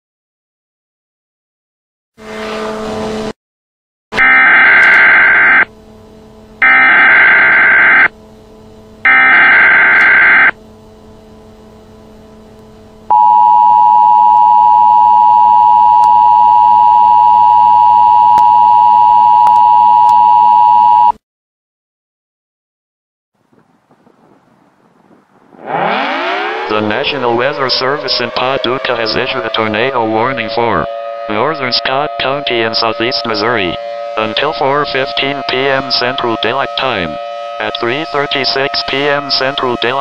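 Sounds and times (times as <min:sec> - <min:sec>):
brief buzz: 0:04.1 - 0:21.0
digital header bursts: 0:04.2 - 0:05.7, 0:06.6 - 0:08.1, 0:09.0 - 0:10.6, 0:25.7 - 0:30.7
two-tone alert signal: 0:04.2 - 0:05.7, 0:06.6 - 0:08.1, 0:09.1 - 0:10.6, 0:13.1 - 0:21.1.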